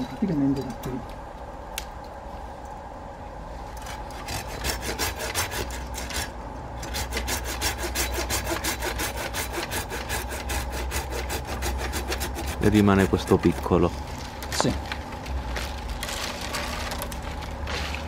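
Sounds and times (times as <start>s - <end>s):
hand saw cutting branch: 3.8s - 13.8s.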